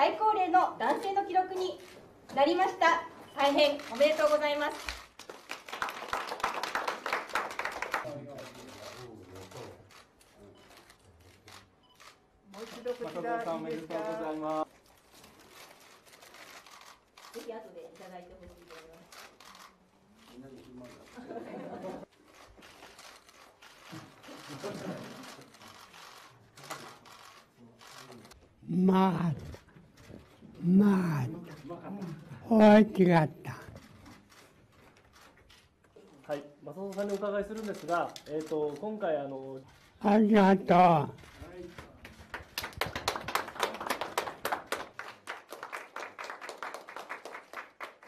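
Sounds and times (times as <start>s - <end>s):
people clapping: 4.0s - 9.0s, 41.5s - 48.0s.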